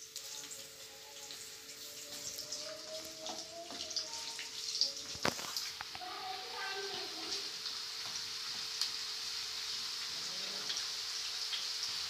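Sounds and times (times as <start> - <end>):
onions sizzling in hot oil: 0.0 - 12.0
spatula stirring in a pan: 4.6 - 12.0.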